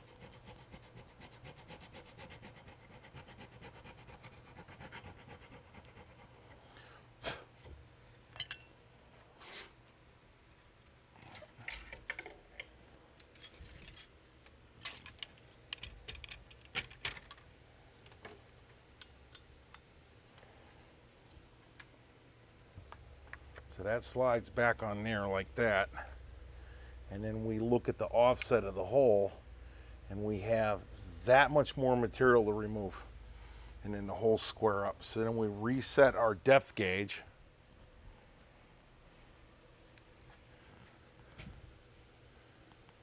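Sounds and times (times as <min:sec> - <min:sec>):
hand file filing wood: 0:00.0 - 0:06.6
clicks and knocks of handled tools: 0:11.2 - 0:18.4.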